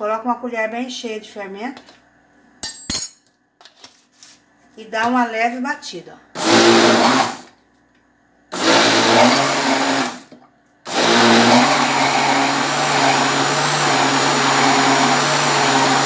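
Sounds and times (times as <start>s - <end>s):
blender mixing batter: 6.4s - 7.5s, 8.5s - 16.0s.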